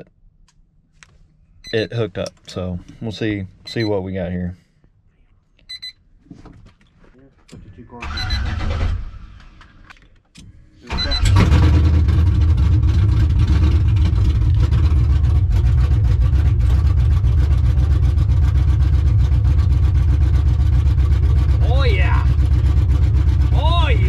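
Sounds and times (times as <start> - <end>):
engine cranking: 8.0 - 9.8
engine running loud: 11.2 - 24.0.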